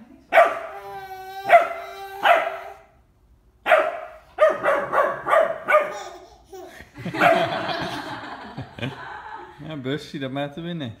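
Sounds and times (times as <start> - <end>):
puppy barking: 0.3 - 0.8, 1.4 - 2.9, 3.6 - 6.2, 7.1 - 7.6
puppy whining: 0.6 - 2.8.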